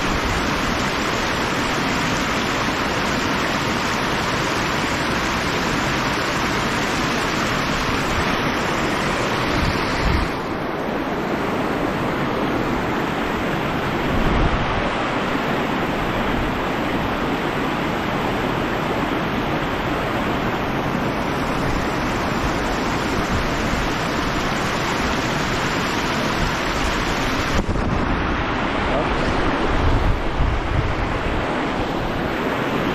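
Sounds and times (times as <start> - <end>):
river rushing over shallows: 0.0 - 32.9
wind buffeting microphone: 7.6 - 17.4, 19.7 - 32.9.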